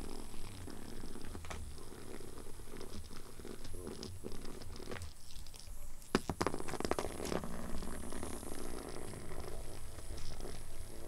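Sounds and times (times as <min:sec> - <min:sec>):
cat claws scratching carpet: 0:00.0 - 0:11.0
cat purring: 0:00.0 - 0:11.0.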